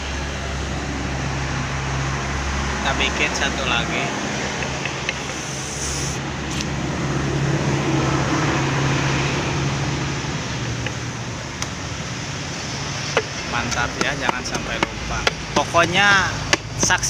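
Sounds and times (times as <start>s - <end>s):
vehicle passing: 0.0s - 17.0s.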